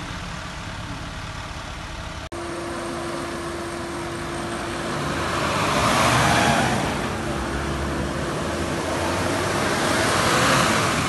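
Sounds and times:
vehicle approaching: 0.0s - 11.0s
vehicle engines humming: 0.0s - 11.0s.

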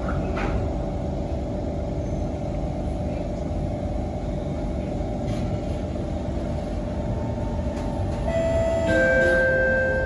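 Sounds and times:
metro train rumble from inside: 0.0s - 10.0s
two-tone electronic chime: 8.3s - 10.0s.

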